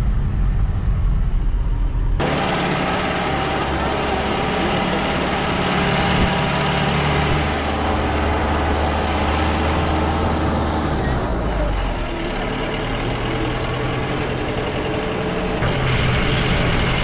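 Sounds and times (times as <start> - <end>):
car engine running: 0.0 - 17.0
road noise: 0.0 - 17.0.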